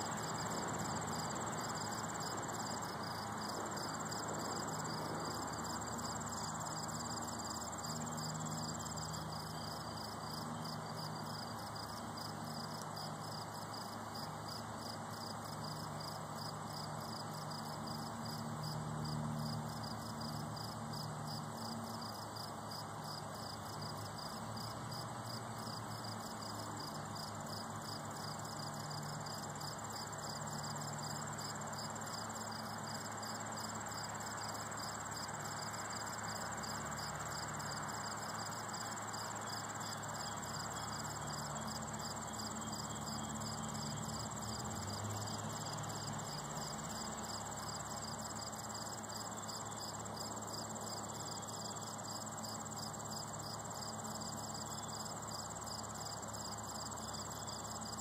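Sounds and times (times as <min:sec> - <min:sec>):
crickets chirping: 0:00.0 - 0:58.0
high-pitched insect trill: 0:00.1 - 0:58.0.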